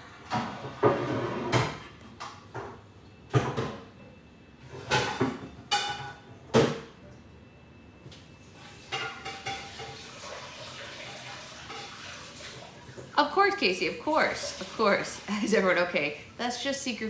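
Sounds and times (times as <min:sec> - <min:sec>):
dishes clattering: 0:00.2 - 0:03.8, 0:04.7 - 0:06.9, 0:08.8 - 0:13.1.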